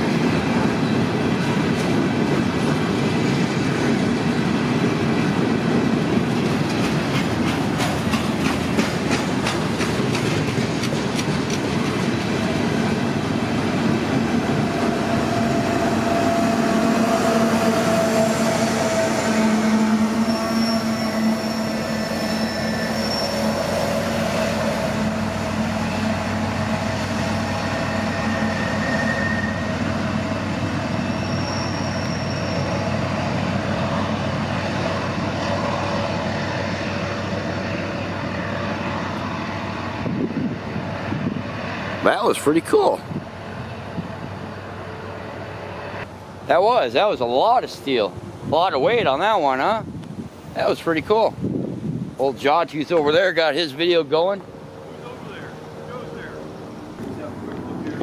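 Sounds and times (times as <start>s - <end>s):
train wheels clacking on rails: 0.0s - 20.0s
diesel locomotive engine hum: 0.0s - 58.0s
high wheel squeals: 14.6s - 33.2s.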